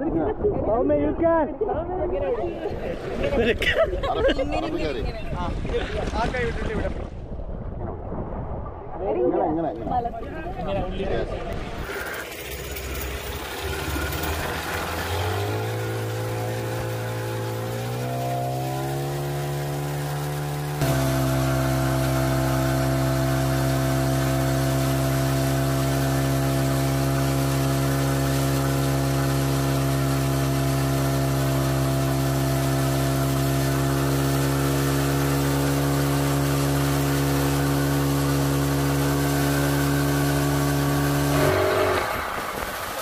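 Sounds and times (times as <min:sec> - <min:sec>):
speedboat engine running: 0:10.3 - 0:43.0.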